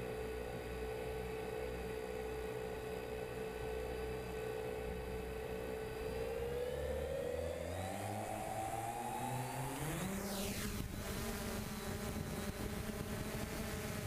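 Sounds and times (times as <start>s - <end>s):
drone motors whining: 6.0s - 14.0s
wind rumble on microphone: 7.9s - 14.0s.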